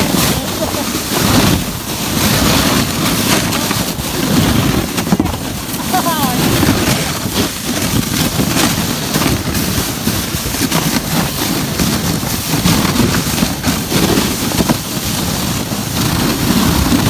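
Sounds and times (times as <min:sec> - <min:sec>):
atv engine running: 0:00.0 - 0:17.0
sled scraping over snow: 0:00.0 - 0:17.0
wind buffeting microphone: 0:00.0 - 0:17.0.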